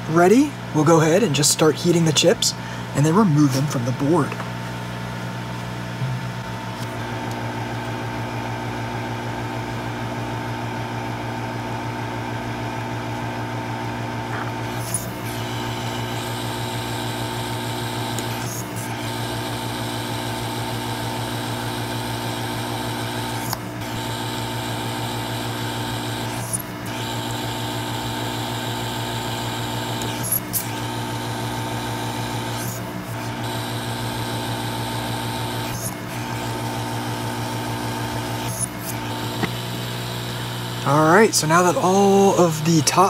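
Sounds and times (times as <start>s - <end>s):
hot air station humming: 0.0s - 4.8s, 14.2s - 43.0s.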